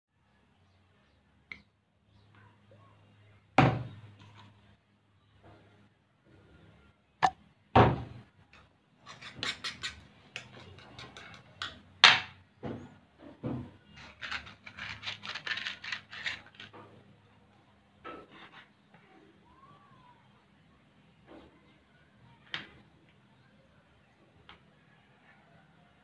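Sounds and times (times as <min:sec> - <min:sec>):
metal spoon scraping ceramic bowl: 0:09.0 - 0:11.8.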